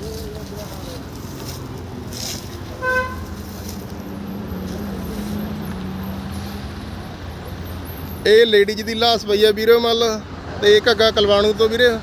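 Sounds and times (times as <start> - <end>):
engine and road noise rumble: 0.0 - 12.0
vehicle horn toot: 2.8 - 3.4.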